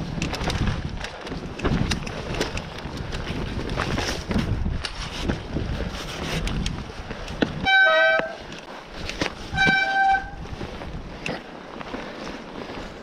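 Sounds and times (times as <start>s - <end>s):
wind on microphone: 0.0s - 11.4s
tyres rattling on rocky trail: 0.0s - 13.0s
bike brakes squealing: 9.5s - 10.4s.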